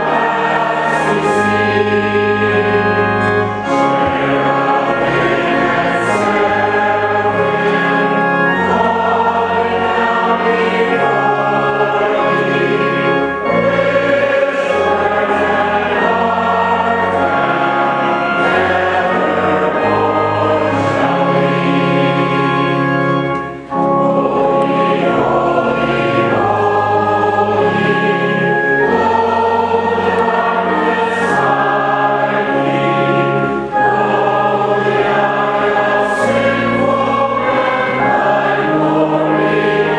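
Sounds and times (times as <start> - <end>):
congregation singing a hymn: 0.0 - 39.9.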